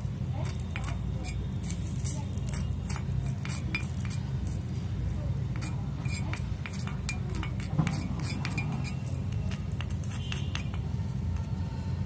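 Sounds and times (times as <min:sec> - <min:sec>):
metal utensils clinking: 0:00.4 - 0:04.6, 0:05.6 - 0:09.8.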